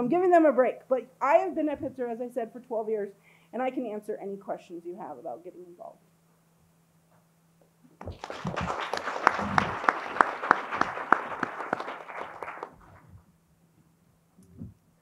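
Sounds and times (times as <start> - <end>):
audience applauding: 8.0 - 13.0.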